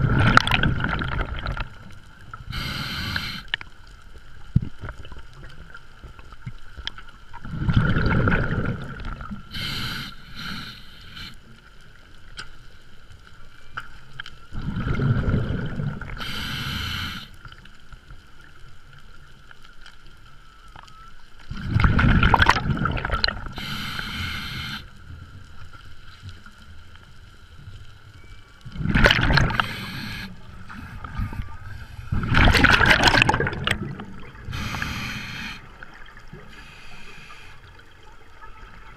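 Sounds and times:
regulator hiss: 2.5s - 3.6s, 9.5s - 11.5s, 16.2s - 17.5s, 23.6s - 25.2s, 29.5s - 32.2s, 34.5s - 35.7s, 36.5s - 37.8s
underwater regulator bubbling: 7.4s - 11.4s, 21.5s - 24.9s, 28.6s - 37.2s.

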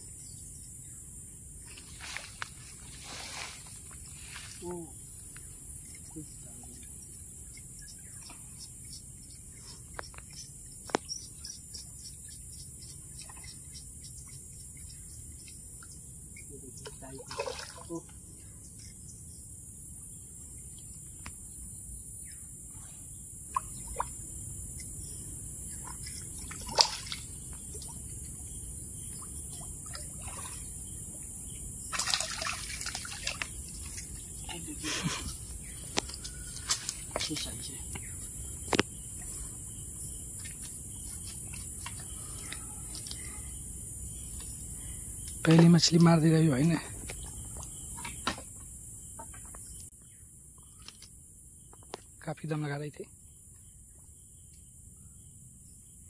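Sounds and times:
high-pitched insect drone: 0.0s - 51.0s
fish splashing in water: 17.2s - 18.0s, 25.8s - 28.0s, 31.9s - 34.2s.

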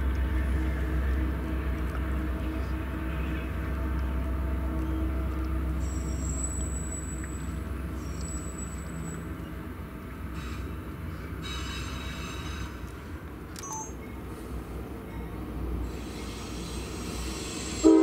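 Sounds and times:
train wheels rumbling on rail: 0.0s - 18.0s
high wheel squeal: 5.8s - 9.3s.

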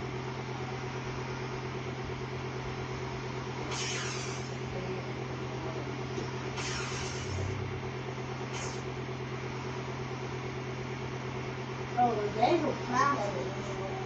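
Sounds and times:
low machine hum: 0.0s - 14.0s
short swishes: 3.7s - 4.5s, 6.6s - 7.8s, 8.4s - 8.9s.

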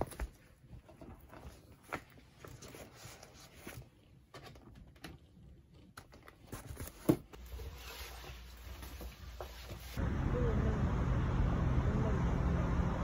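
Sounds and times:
fabric rustling: 6.2s - 10.0s.

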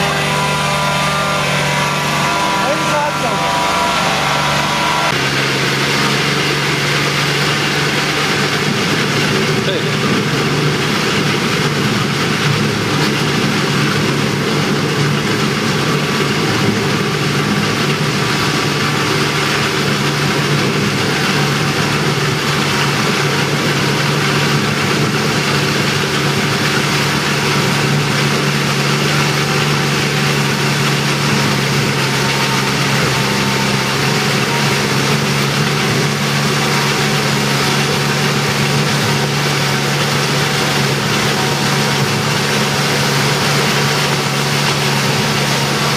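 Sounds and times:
harvester engine running: 0.0s - 45.9s.

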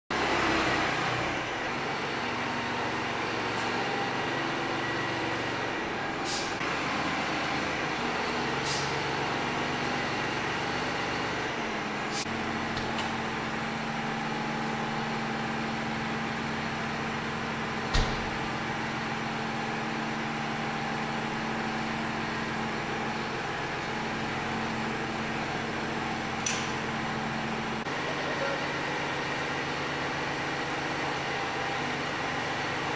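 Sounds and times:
tractor diesel engine running: 0.1s - 32.9s.

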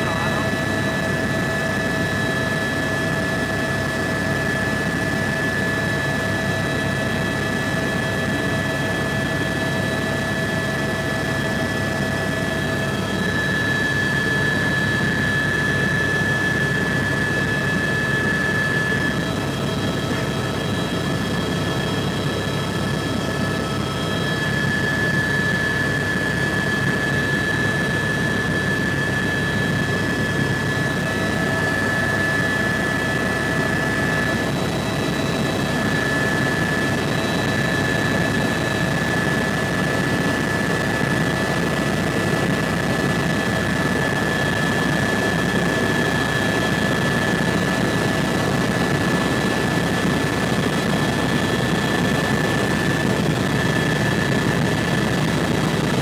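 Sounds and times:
helicopter engine whine: 0.0s - 56.0s
low rotor rumble: 10.3s - 56.0s.

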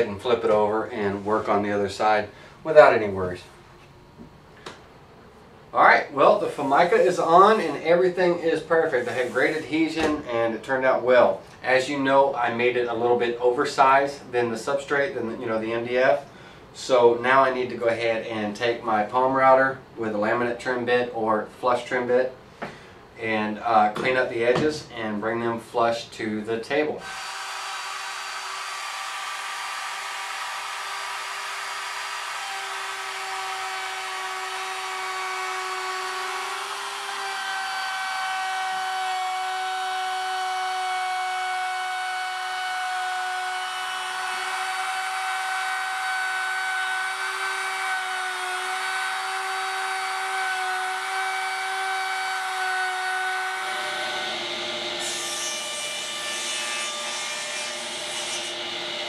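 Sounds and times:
router motor whine: 27.0s - 59.0s.

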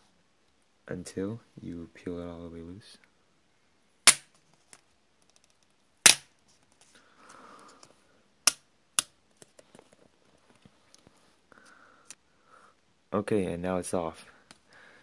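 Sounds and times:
tape snapping off: 4.1s - 4.3s, 6.0s - 6.3s.

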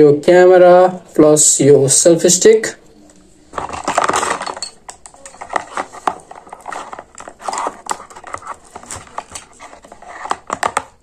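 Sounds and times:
packaging rustling: 3.4s - 11.0s
plastic parts clicking: 3.6s - 11.0s.

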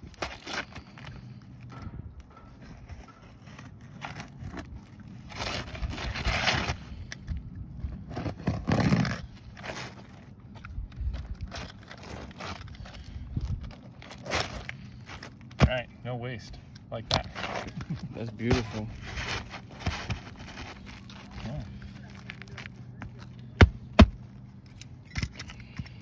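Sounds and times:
shingles scraping and rustling: 17.1s - 23.2s.

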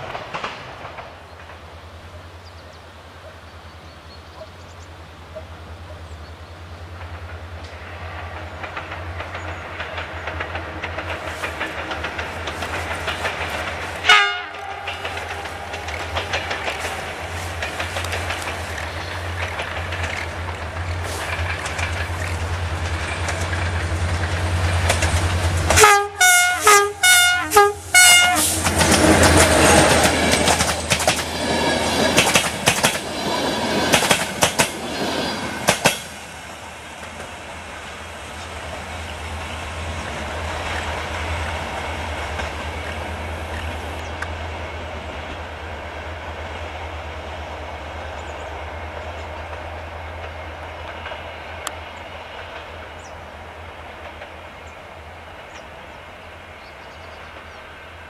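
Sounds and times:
train rumble: 0.0s - 58.0s
wheels clattering over rail joints: 6.9s - 25.8s, 28.4s - 37.6s
train horn toots: 14.0s - 15.8s, 25.7s - 30.0s.

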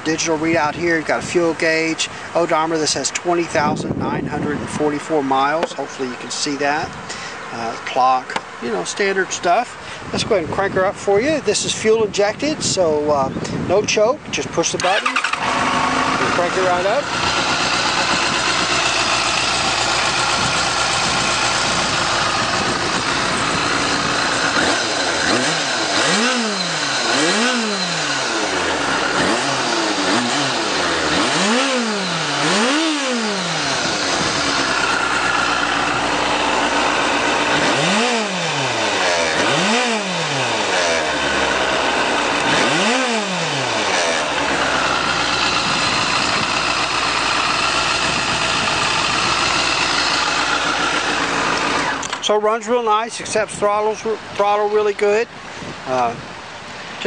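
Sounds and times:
motorcycle engine idling: 14.8s - 53.4s
motorcycle engine revving: 14.8s - 53.8s.

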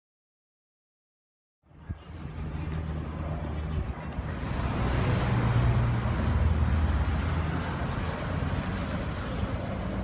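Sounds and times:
cars driving past: 2.2s - 10.0s.

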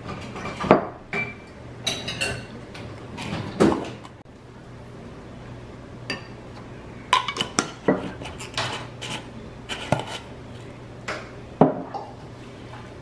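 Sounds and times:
faint steady hum: 0.0s - 13.0s
spoon clinking against ceramic dishes: 0.4s - 2.6s.

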